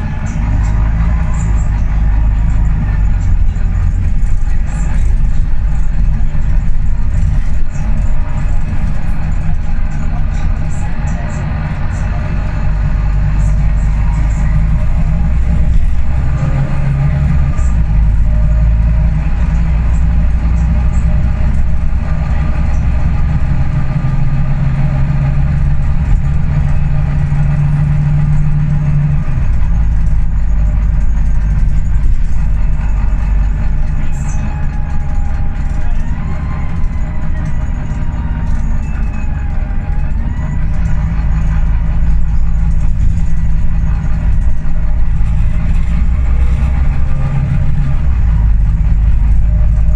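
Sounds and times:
bus diesel engine drone: 0:00.0 - 0:49.9.

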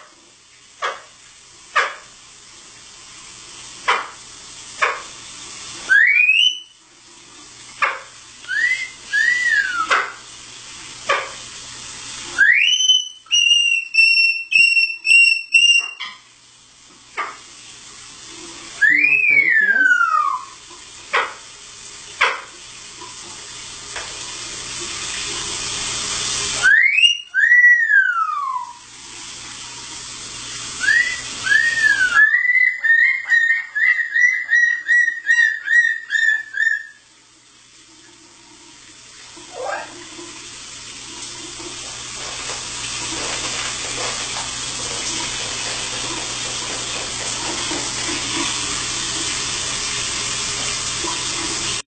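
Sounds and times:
shower spray running: 0:00.0 - 0:51.9
person whistling: 0:08.5 - 0:09.9, 0:18.8 - 0:19.8, 0:30.8 - 0:32.5.

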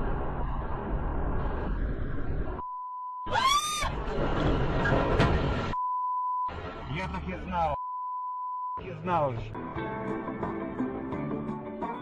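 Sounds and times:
car road noise: 0:00.0 - 0:02.6, 0:03.3 - 0:05.8, 0:06.5 - 0:07.8
censor bleep tone: 0:05.8 - 0:06.5, 0:07.8 - 0:08.8.

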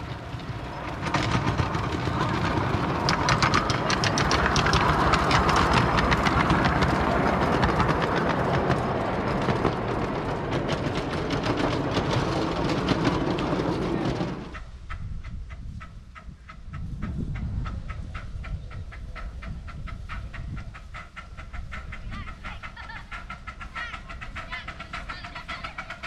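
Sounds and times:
fast regular clicks: 0:00.0 - 0:14.6, 0:20.8 - 0:26.0
miniature steam train rumbling past: 0:00.0 - 0:26.0.

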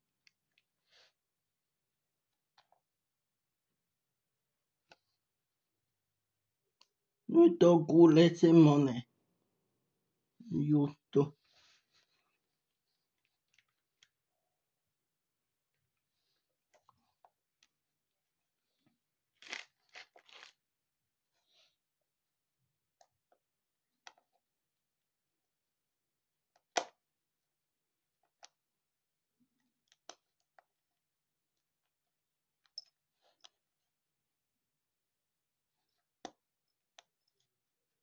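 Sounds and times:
crunching: 0:19.4 - 0:20.6
packaging crinkling: 0:19.4 - 0:20.6.

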